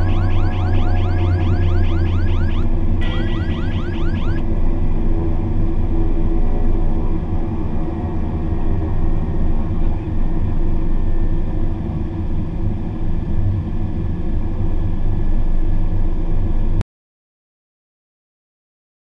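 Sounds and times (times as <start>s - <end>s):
turboprop engine and propeller drone: 0.0s - 16.8s.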